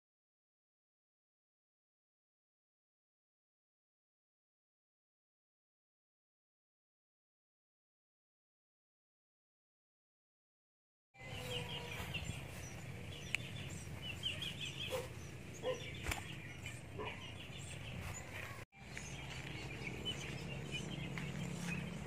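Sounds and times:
small birds chirping: 11.2 - 22.0
steady low rumble: 11.9 - 22.0.

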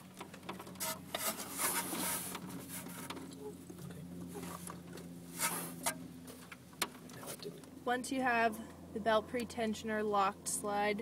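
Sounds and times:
tool handling clicks and scrapes: 4.4 - 6.6.

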